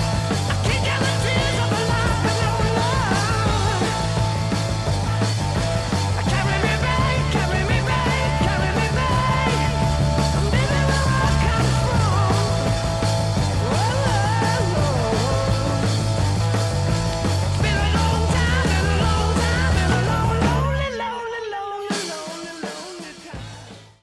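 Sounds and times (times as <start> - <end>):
rock music: 0.0 - 24.0.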